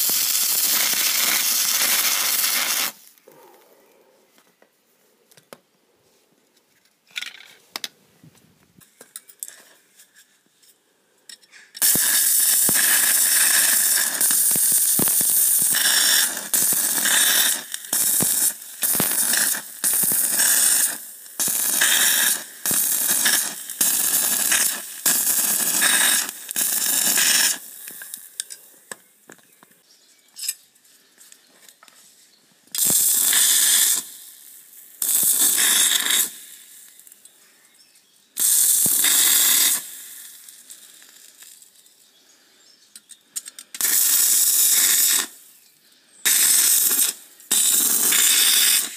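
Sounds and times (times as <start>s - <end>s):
welding arc crackling: 0.0s - 3.2s, 11.8s - 28.4s, 32.8s - 37.2s, 38.4s - 41.7s, 43.8s - 45.4s, 46.3s - 48.9s.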